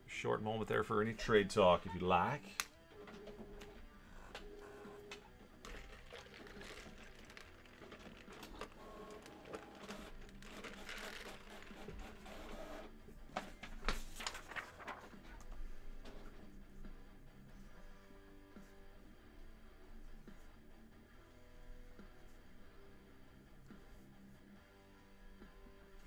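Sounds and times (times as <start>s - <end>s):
paper rustling: 5.1s - 12.6s, 13.3s - 16.6s.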